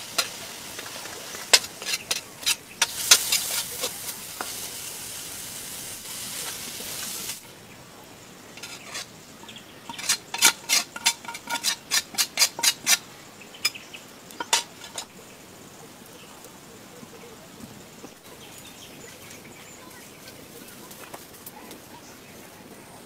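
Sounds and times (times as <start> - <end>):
food sizzling in a pan: 0.0 - 16.5
metal utensil knocking on pan: 14.4 - 15.0.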